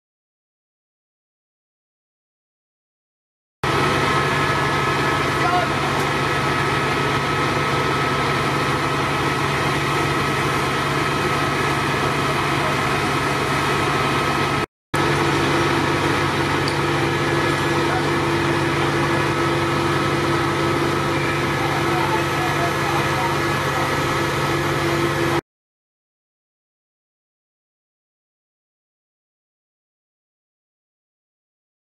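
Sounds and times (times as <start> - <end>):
engine drone with whining tones: 3.6 - 25.4.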